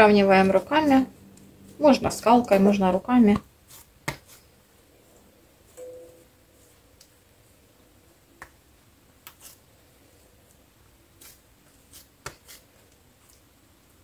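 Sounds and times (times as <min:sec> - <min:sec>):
hands patting dough: 0:00.1 - 0:04.6, 0:08.2 - 0:09.7, 0:10.4 - 0:13.6.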